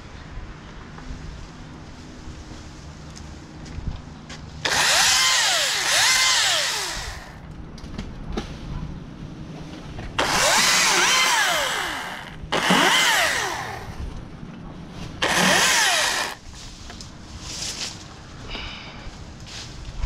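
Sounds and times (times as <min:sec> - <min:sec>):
battery chainsaw cutting limbs: 0:04.6 - 0:07.4, 0:10.2 - 0:14.0, 0:15.2 - 0:16.4.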